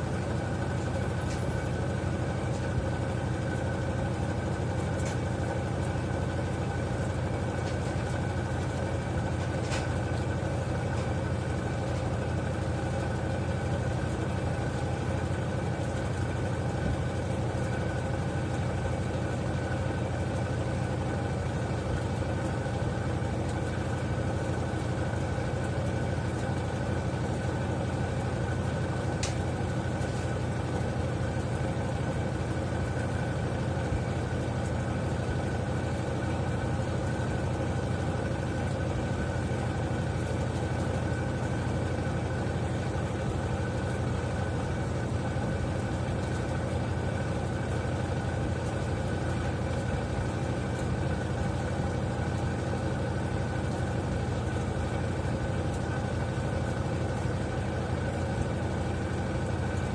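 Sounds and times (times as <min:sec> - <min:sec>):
washing machine motor hum: 0:00.0 - 0:59.9.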